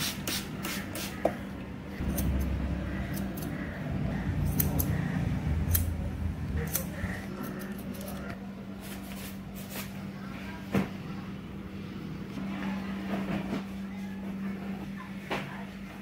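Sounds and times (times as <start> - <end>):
scissors snipping hair: 2.0 - 8.4.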